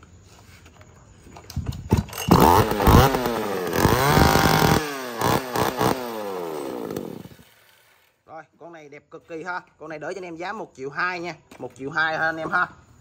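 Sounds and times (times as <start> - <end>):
chainsaw pull-starting and revving: 2.0 - 8.2.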